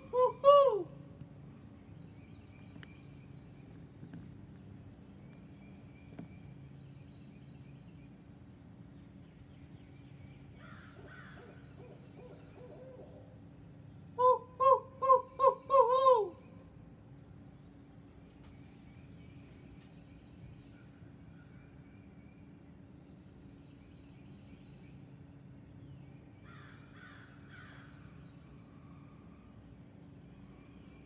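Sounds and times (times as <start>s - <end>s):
owl hooting: 0.0s - 1.2s, 10.6s - 13.4s, 14.2s - 16.6s
faint distant bird calls: 0.0s - 31.0s.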